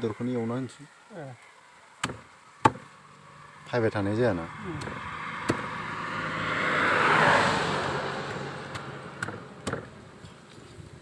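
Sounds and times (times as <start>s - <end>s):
knife chopping on wooden stump: 2.0s - 2.9s, 4.8s - 5.8s, 8.3s - 10.0s
motor vehicle passing by: 2.9s - 11.0s.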